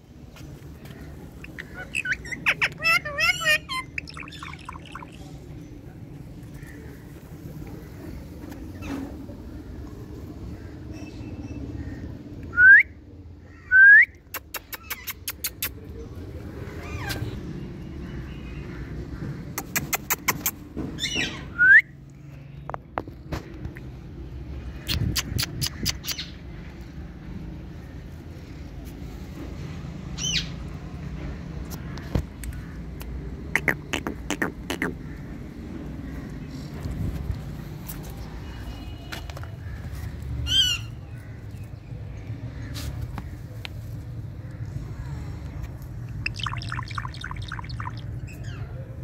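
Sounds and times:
parakeet squawking: 1.4s - 5.3s, 46.2s - 48.1s
parakeet sharp clicks: 19.6s - 20.6s.

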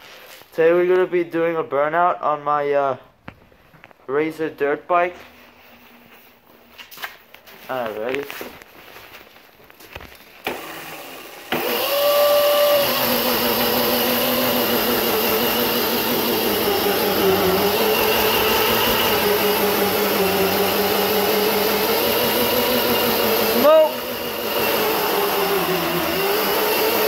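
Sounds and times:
electric motor whining: 10.4s - 27.0s
tire spinning rushing noise: 11.6s - 27.0s.

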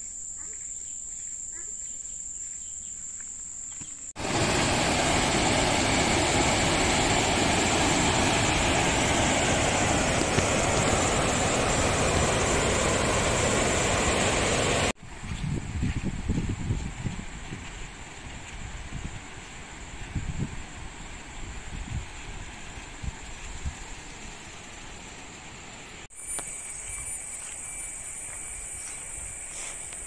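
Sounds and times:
high-pitched insect drone: 2.4s - 15.0s, 23.1s - 30.0s
waterfall rushing: 4.2s - 15.0s.

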